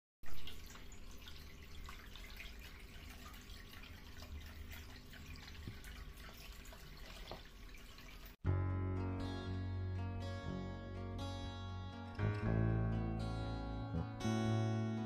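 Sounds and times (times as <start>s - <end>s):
fountain water trickling: 0.2s - 8.4s
guitar music: 8.4s - 15.0s.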